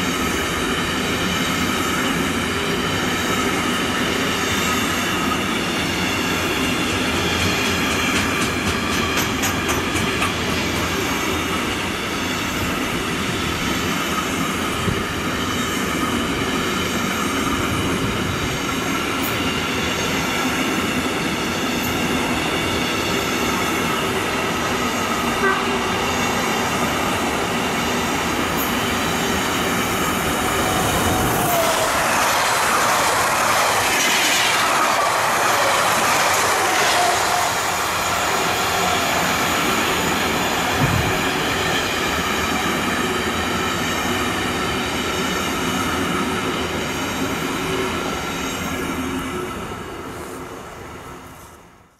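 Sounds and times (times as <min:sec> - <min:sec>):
passing train rush: 0:00.0 - 0:51.9
train wheels clattering: 0:06.7 - 0:10.7
high-pitched wheel squeal: 0:36.6 - 0:39.8.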